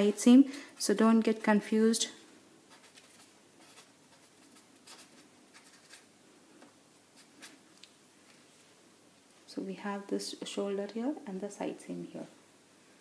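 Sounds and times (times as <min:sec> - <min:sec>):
pen scratching on paper: 0:02.7 - 0:06.1.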